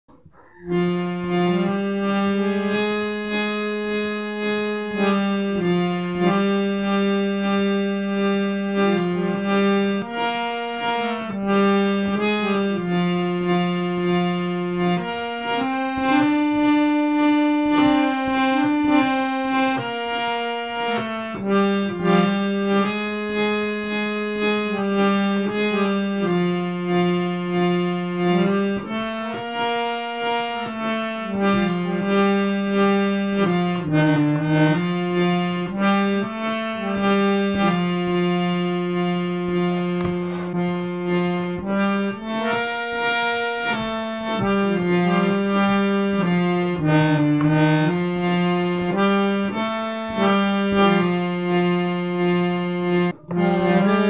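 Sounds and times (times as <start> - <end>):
harmonium playing a tune: 0.0 - 54.0.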